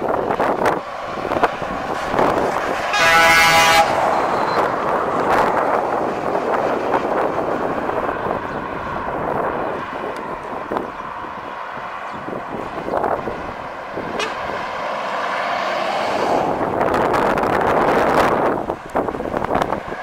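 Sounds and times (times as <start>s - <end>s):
lorry engine and tyres passing: 0.0s - 20.0s
truck horn blast: 2.9s - 4.7s, 14.1s - 14.6s.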